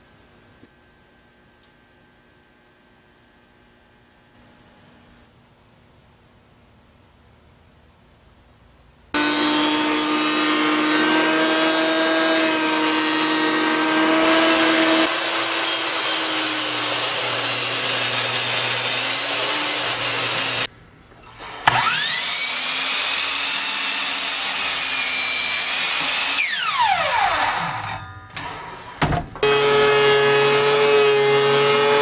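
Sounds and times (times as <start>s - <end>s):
table saw running: 9.2s - 20.7s, 21.6s - 28.8s, 29.4s - 32.0s
thickness planer running: 9.2s - 20.7s, 21.6s - 28.6s
saw motor whine: 21.6s - 28.0s.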